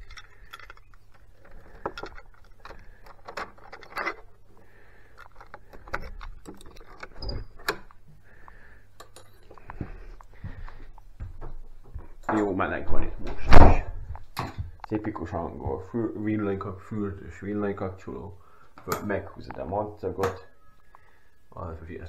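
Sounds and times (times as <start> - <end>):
door handle rattling: 5.2 - 8.0.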